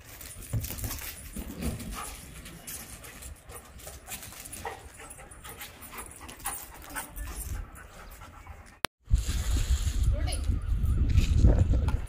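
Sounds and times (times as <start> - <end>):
dog panting: 1.8 - 8.9.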